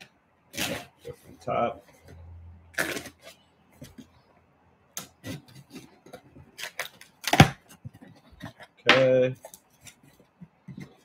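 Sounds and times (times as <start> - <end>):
fingers and tape rustling on cardboard: 5.0 - 11.0.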